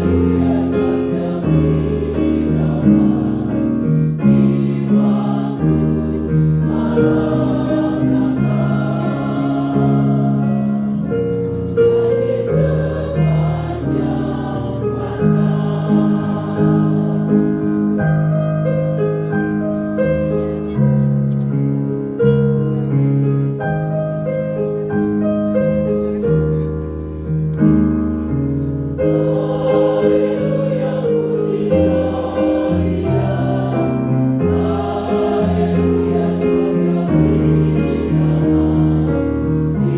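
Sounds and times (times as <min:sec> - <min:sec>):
mixed choir singing a hymn: 0:00.0 - 0:18.6, 0:29.0 - 0:39.9.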